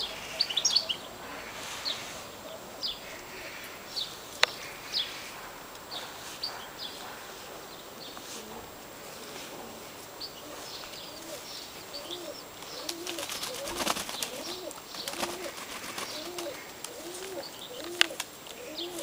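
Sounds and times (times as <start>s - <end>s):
pigeons cooing: 0.0s - 19.0s
wing flutters: 12.6s - 19.0s.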